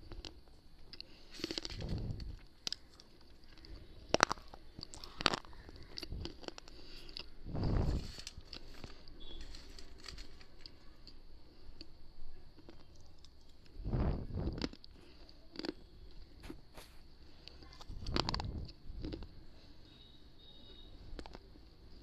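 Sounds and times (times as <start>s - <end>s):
biting and chewing crunches: 0.0s - 12.0s, 12.6s - 22.0s
dull low thumps: 7.4s - 8.0s, 13.8s - 14.6s.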